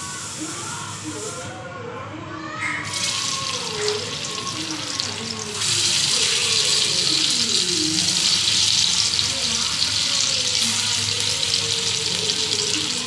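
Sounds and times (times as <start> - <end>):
hot oil sizzling: 2.8 - 13.0.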